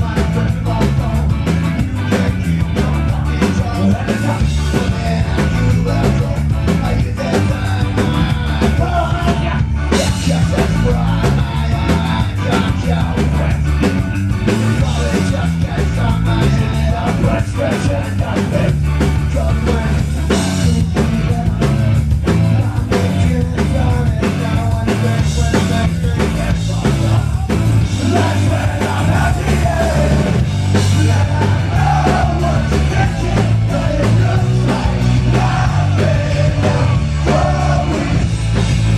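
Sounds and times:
live rock band playing: 0:00.0 - 0:38.9
person singing: 0:14.8 - 0:38.2.

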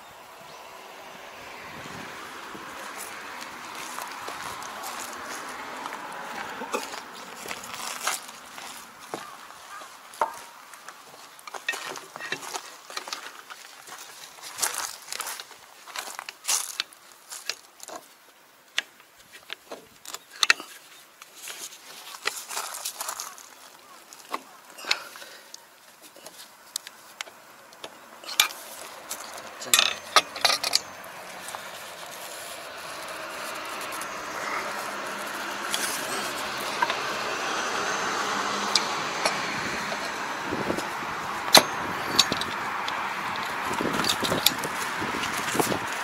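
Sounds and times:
steady background noise: 0:00.0 - 0:46.0
hand tools clinking on metal: 0:28.2 - 0:46.0
sharp metal taps: 0:41.4 - 0:44.6.

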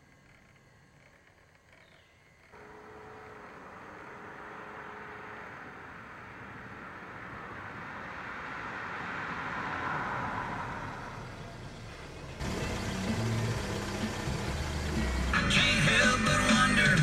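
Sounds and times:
car passing on wet road: 0:03.5 - 0:15.4.

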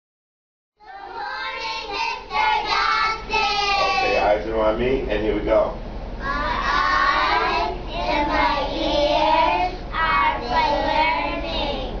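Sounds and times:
children's choir singing: 0:00.8 - 0:04.2, 0:06.2 - 0:12.0.

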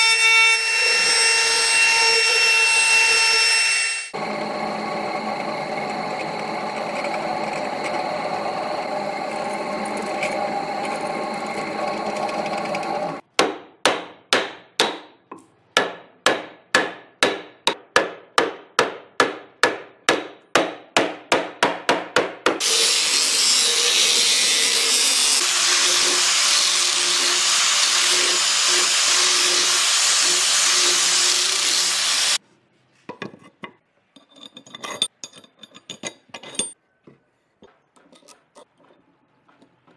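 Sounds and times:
power tool running: 0:00.8 - 0:13.2, 0:22.6 - 0:32.4
hammer striking wood: 0:13.4 - 0:22.6
power tool with high hiss: 0:22.6 - 0:32.4.

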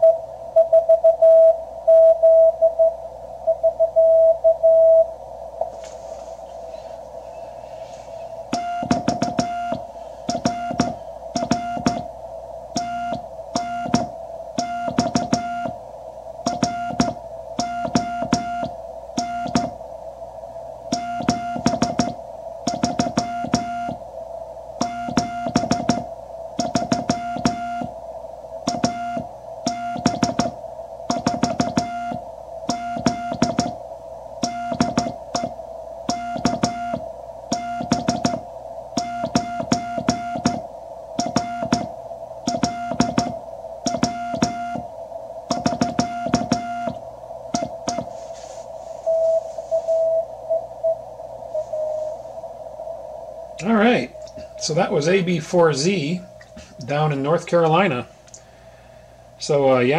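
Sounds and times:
morse code beeps: 0:00.0 - 0:05.1, 0:08.5 - 0:12.1, 0:12.8 - 0:15.8, 0:16.5 - 0:19.8, 0:20.9 - 0:24.0, 0:24.8 - 0:27.9, 0:28.7 - 0:33.8, 0:34.4 - 0:38.4, 0:39.0 - 0:40.6, 0:41.2 - 0:41.9, 0:42.5 - 0:44.9, 0:45.5 - 0:47.0, 0:47.6 - 0:48.2, 0:49.1 - 0:51.0, 0:51.6 - 0:52.2
receiver hiss: 0:00.0 - 0:59.9.

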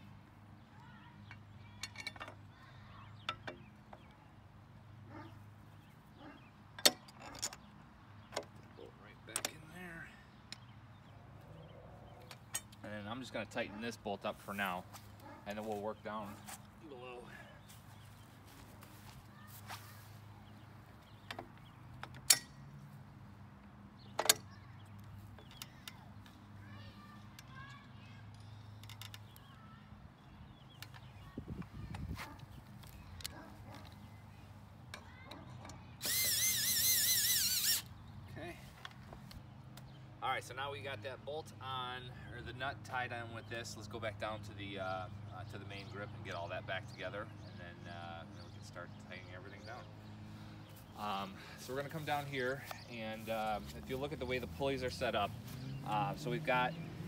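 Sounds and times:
metal parts clicking and knocking: 0:01.3 - 0:02.4.

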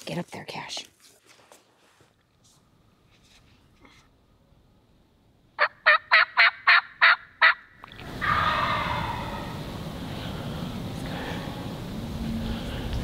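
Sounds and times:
turkey yelping: 0:05.6 - 0:09.7.

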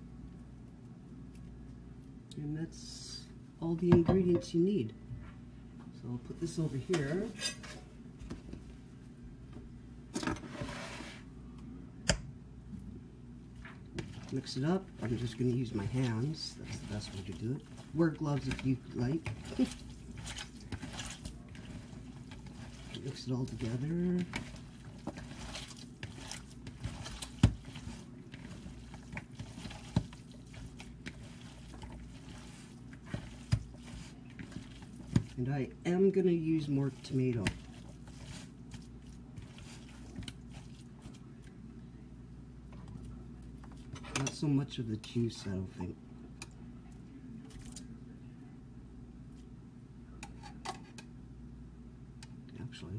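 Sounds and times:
low steady hum: 0:00.0 - 0:52.9
scraping rustle: 0:10.3 - 0:11.3
hands squelching wet meat mixture: 0:13.6 - 0:41.6.

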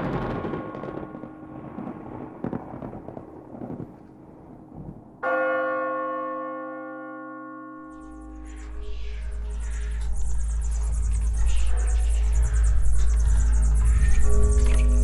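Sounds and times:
rumble: 0:00.0 - 0:05.2, 0:08.0 - 0:15.0
low steady drone: 0:07.9 - 0:15.0.

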